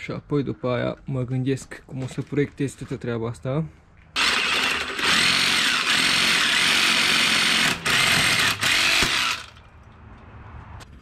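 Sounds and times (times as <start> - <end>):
power tool cutting steel: 4.2 - 9.7.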